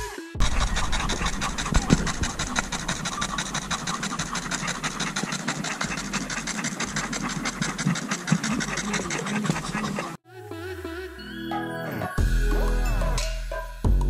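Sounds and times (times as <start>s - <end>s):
dogs panting: 0.4s - 10.2s.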